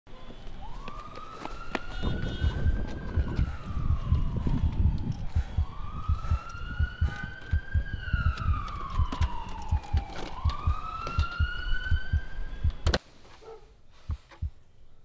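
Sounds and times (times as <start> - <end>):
siren wailing: 0.4 - 13.0
fast low thuds: 2.0 - 13.0, 14.1 - 14.6.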